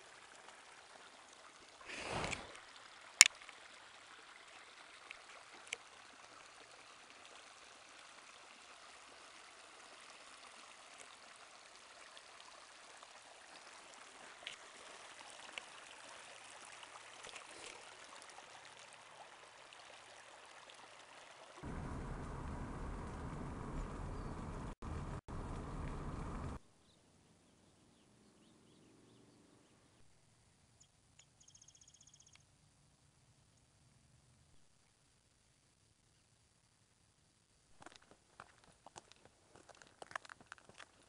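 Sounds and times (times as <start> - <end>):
stream trickling over rocks: 0.0 - 22.4, 37.8 - 41.0
car road noise rumble: 21.6 - 26.6
small ticks: 31.1 - 32.5.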